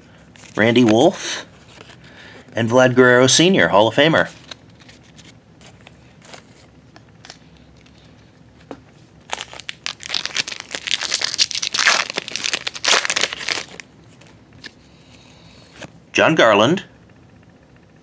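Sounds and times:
plastic wrapper crinkling: 9.2 - 14.4.

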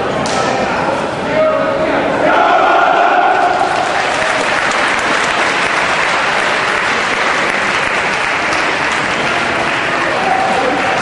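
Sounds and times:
crowd clapping: 3.4 - 11.0.

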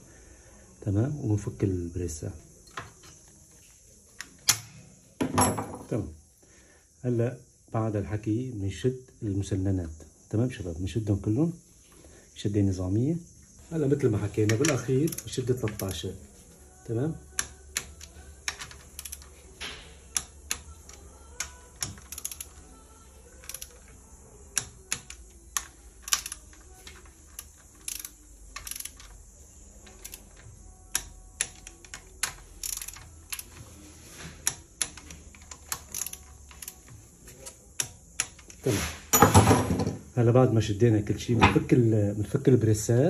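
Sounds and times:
ratcheting wrench clicking: 14.4 - 16.0, 17.4 - 33.6, 34.4 - 38.6.

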